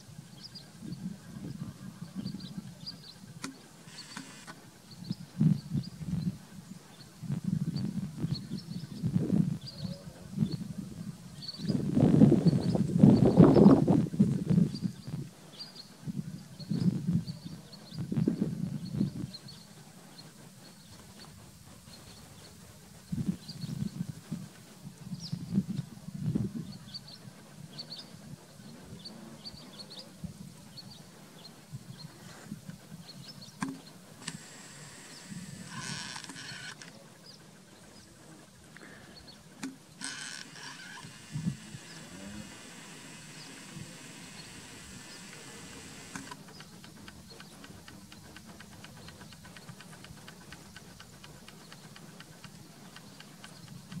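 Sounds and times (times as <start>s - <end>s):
small birds chirping: 0.0s - 24.3s, 25.0s - 54.0s
single click: 3.4s - 4.6s, 33.6s - 34.5s, 46.1s - 46.4s
faint regular ticking: 39.6s - 54.0s.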